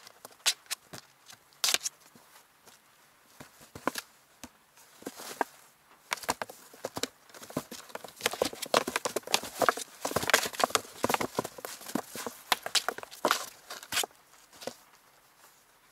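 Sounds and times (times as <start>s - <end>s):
kitten scratching on cardboard: 6.2s - 14.8s.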